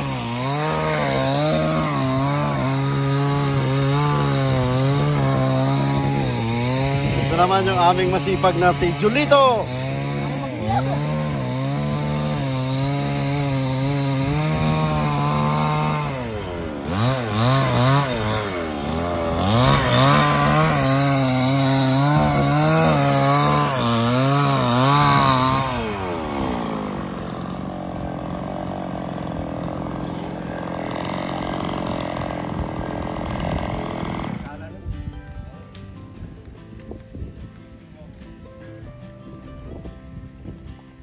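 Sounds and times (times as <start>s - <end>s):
chainsaw cutting wood: 0.0s - 37.2s.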